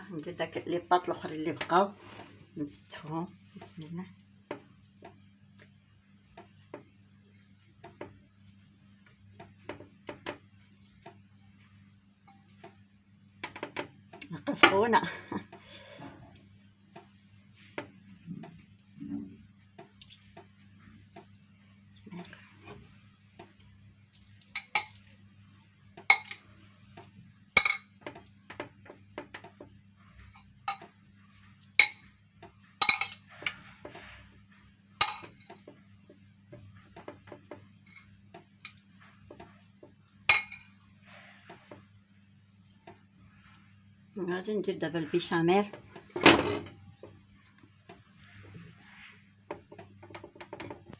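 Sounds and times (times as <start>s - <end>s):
metal spoon clinking on glass: 32.8s - 33.2s, 35.0s - 35.4s, 40.3s - 40.6s.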